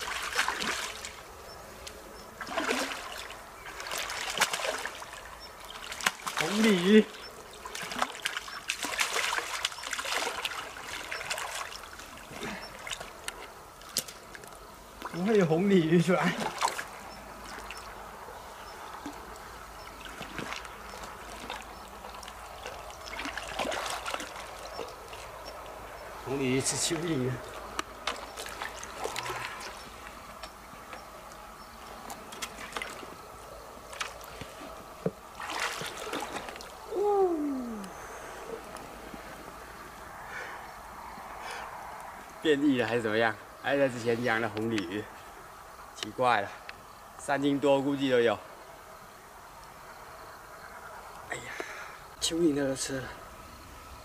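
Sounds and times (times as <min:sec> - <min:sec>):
fish splashing in water: 0:00.0 - 0:01.3, 0:02.3 - 0:14.4, 0:16.2 - 0:18.0, 0:18.6 - 0:26.8, 0:27.4 - 0:30.3, 0:32.1 - 0:38.6
faint trickle of water: 0:26.4 - 0:30.5.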